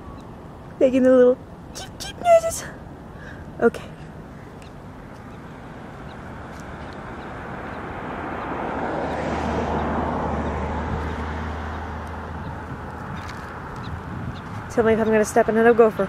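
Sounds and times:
low engine hum: 0.0 - 16.0
vehicle driving past: 4.7 - 14.8.

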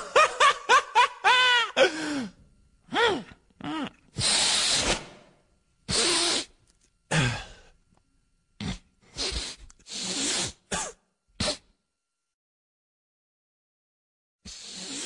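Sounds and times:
cartoon gibberish grunts: 2.9 - 4.1.

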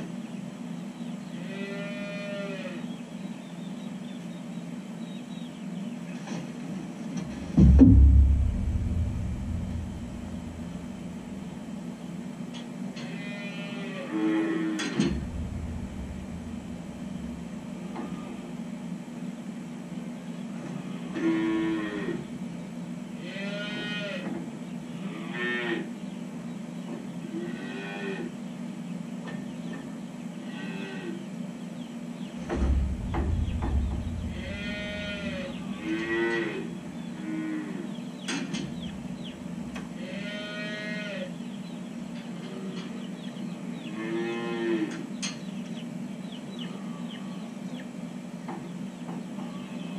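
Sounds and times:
calves mooing: 1.4 - 2.9, 13.0 - 16.8, 20.8 - 22.3, 23.2 - 24.3, 25.0 - 25.9, 27.3 - 28.4, 30.4 - 31.3, 32.6 - 38.0, 39.9 - 41.4, 42.4 - 43.0, 43.8 - 45.1
steady low hum: 2.8 - 13.1, 14.8 - 21.2, 31.2 - 40.1
brief low rumble: 7.3 - 11.7, 15.0 - 17.9, 32.4 - 35.8.

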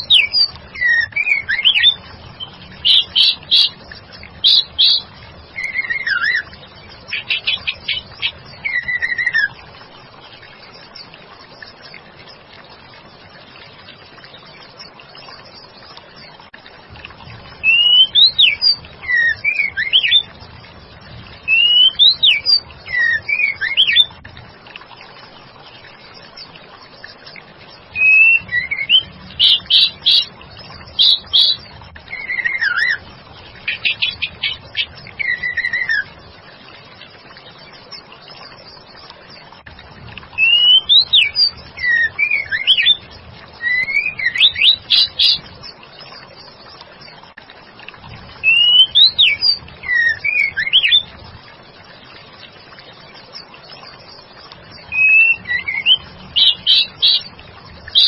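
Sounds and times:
bird calling with whistles: 0.0 - 3.8, 4.4 - 6.5, 7.1 - 9.5, 17.6 - 20.3, 21.5 - 24.1, 28.0 - 30.3, 30.9 - 33.0, 33.7 - 36.1, 40.4 - 43.0, 43.6 - 45.4, 48.4 - 51.1, 54.9 - 57.3.

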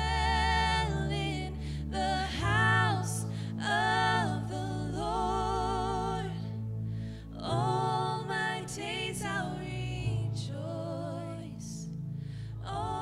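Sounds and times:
low sustained instrumental notes: 0.0 - 13.0
person singing worship song: 0.0 - 13.0.

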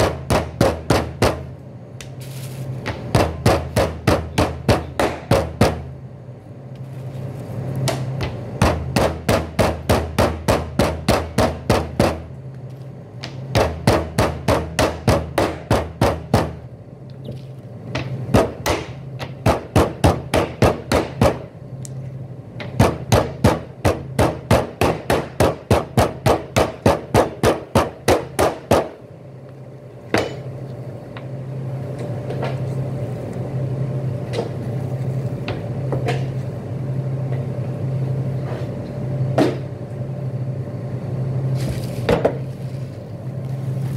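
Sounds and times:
mallet pounding meat: 0.0 - 1.4, 2.9 - 5.9, 7.9 - 12.2, 13.5 - 16.6, 18.3 - 21.4, 22.7 - 29.0
steady low hum: 0.0 - 43.9.

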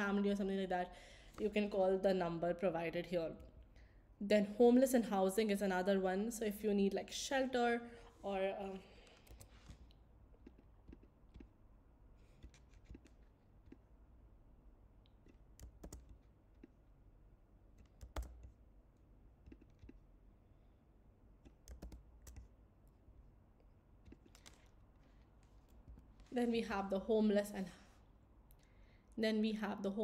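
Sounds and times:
keyboard and mouse clicks: 9.0 - 11.6, 12.2 - 13.9, 15.0 - 16.8, 17.7 - 18.6, 19.4 - 20.1, 21.4 - 22.6, 24.0 - 24.8.

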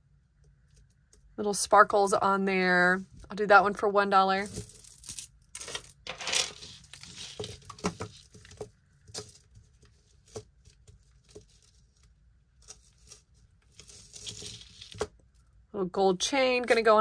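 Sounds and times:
jewelry clicking and clinking: 4.4 - 11.8.

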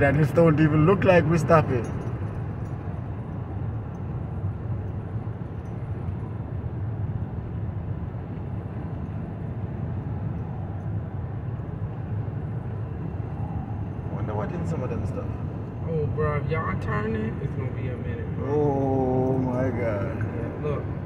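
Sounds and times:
car cabin road and engine rumble: 0.0 - 21.0.

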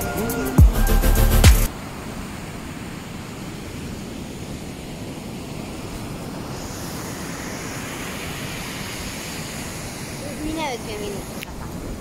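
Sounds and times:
sea surf rushing: 0.0 - 12.0
wind rumbling on microphone: 1.7 - 12.0
higher hiss: 5.5 - 12.0.

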